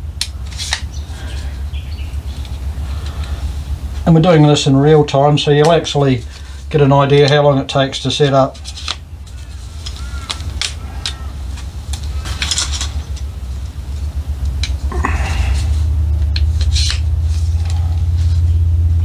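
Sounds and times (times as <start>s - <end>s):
low rumble: 9.2s - 19.0s
metal poles clicking and clattering: 9.8s - 13.3s.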